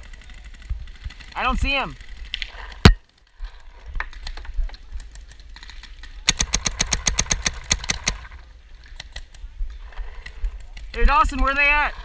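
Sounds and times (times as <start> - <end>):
paintball marker rapid firing: 6.2 - 8.3.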